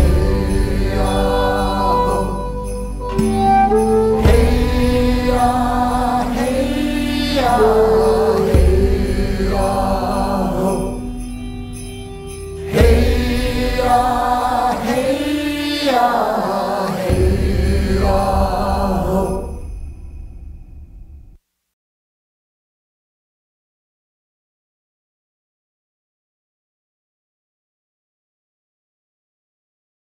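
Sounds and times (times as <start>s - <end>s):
wordless chanting voices: 0.0s - 11.8s, 12.4s - 19.8s
low drone: 0.0s - 21.3s.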